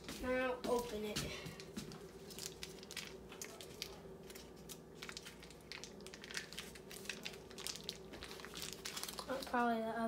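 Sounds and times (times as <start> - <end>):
packaging rustling and crinkling: 1.6 - 9.8.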